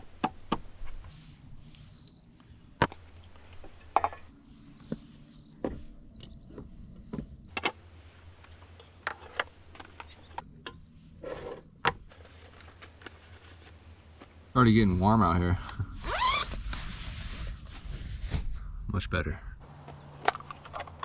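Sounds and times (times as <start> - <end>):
rustling: 11.2 - 14.4.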